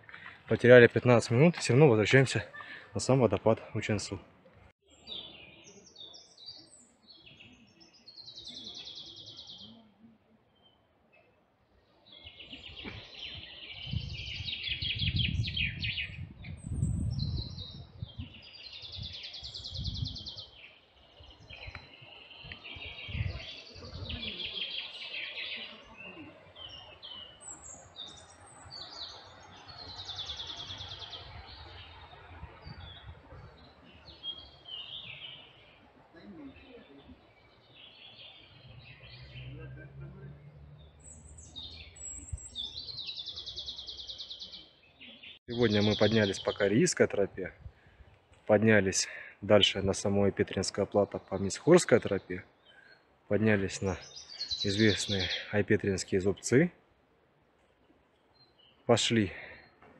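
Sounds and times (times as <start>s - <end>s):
songbirds singing with trills: 0.0s - 59.9s.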